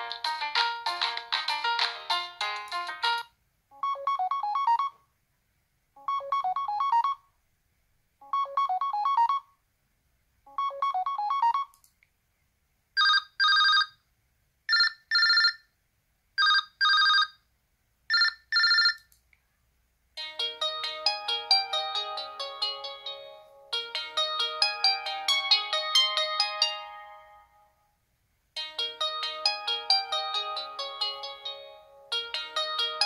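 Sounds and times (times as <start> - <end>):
ringtone melody: 0.0 - 5.0, 6.0 - 7.2, 8.2 - 9.5, 10.5 - 11.7, 20.2 - 27.7, 28.6 - 33.0.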